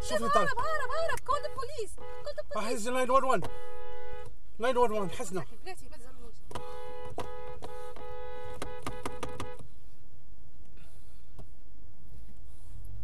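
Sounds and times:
low traffic noise: 0.0 - 13.0
two-tone car horn: 1.1 - 5.4, 6.5 - 9.6.

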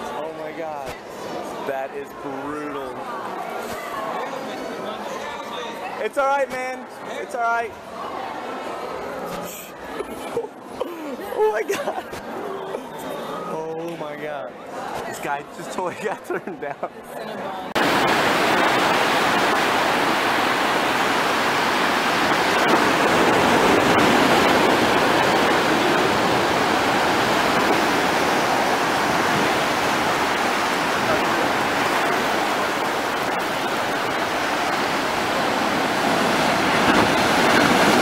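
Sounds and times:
surf breaking over rocks: 17.8 - 38.0.

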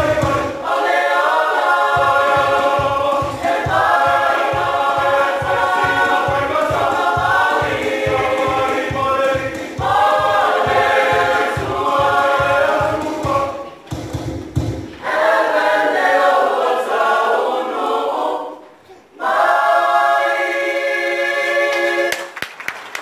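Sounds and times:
choir singing a cappella: 0.0 - 14.0, 14.8 - 22.4
low regular thumps: 0.0 - 15.0.

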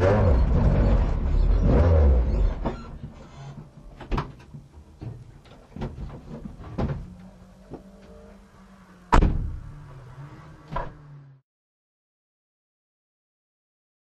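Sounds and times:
car door slamming: 9.1 - 9.7.

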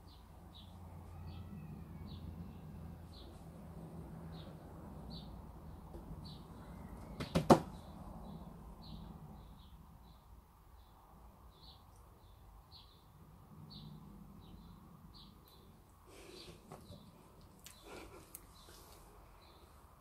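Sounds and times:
small bird chirping: 4.3 - 19.7
sharp knocks: 7.1 - 7.8.

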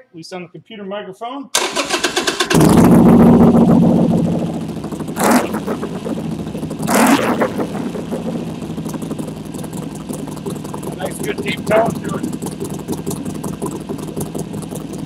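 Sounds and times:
motorcycle starter: 1.6 - 3.1
motorcycle engine revving and idling: 1.8 - 15.0.

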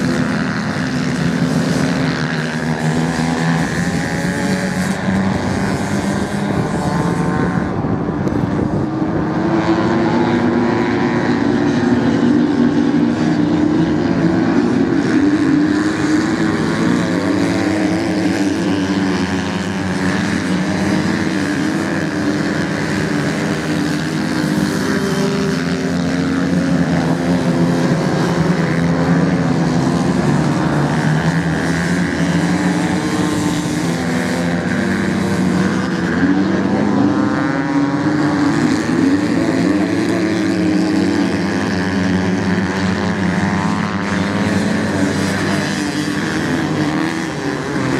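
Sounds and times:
motorcycle engines revving: 0.0 - 47.9.

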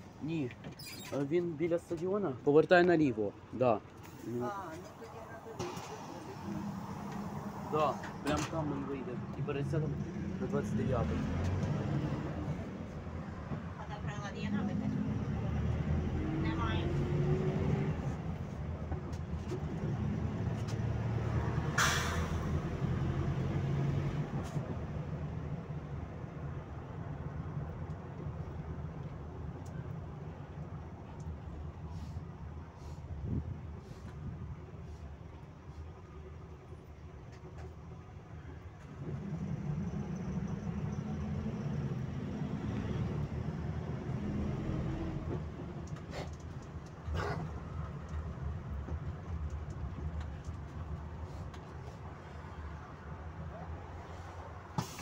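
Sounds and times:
road noise: 0.0 - 55.0
bus engine droning: 3.5 - 55.0
compressed air hiss: 54.8 - 55.0.

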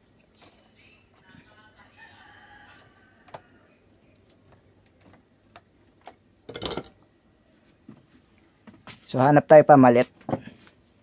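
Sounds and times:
faint clicks and taps: 2.8 - 6.2.

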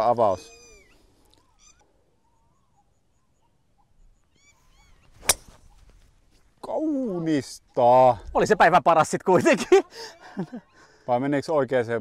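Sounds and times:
faint bird chirps: 0.0 - 6.2
golf club striking ball: 5.1 - 6.0.

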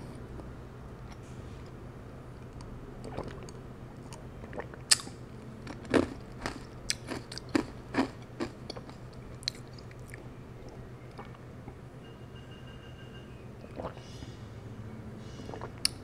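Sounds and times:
person gulping a drink: 3.0 - 11.8, 13.7 - 14.0, 15.4 - 16.0.

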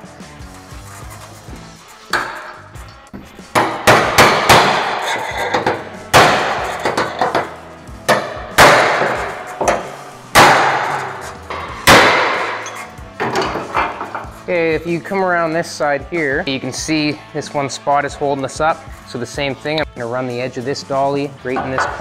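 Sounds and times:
hammer striking sheet metal: 2.1 - 2.7, 3.5 - 14.4.

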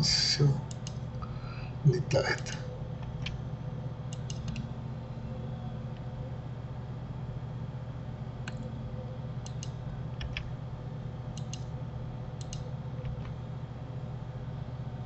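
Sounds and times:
steady low hum: 0.0 - 15.0
mouse and keyboard clicks: 11.4 - 11.7, 12.4 - 13.4.

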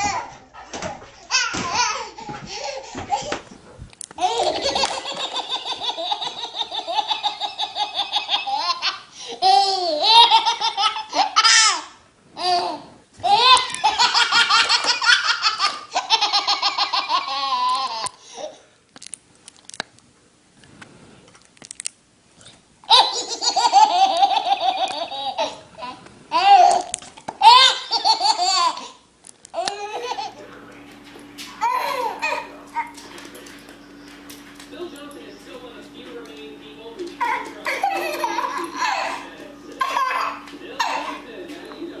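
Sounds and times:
baby laughing: 0.0 - 0.4, 1.3 - 3.5, 4.2 - 18.6, 22.9 - 29.0, 29.6 - 30.4, 31.6 - 33.0, 37.1 - 41.3.

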